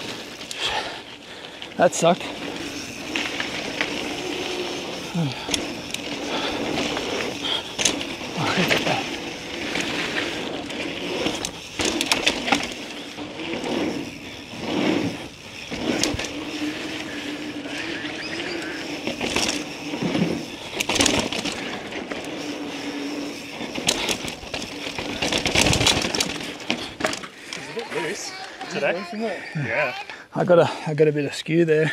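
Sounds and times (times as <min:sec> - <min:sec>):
bike clattering over bumps: 0:00.0 - 0:28.7
bike tyres crunching over dirt: 0:00.0 - 0:29.2.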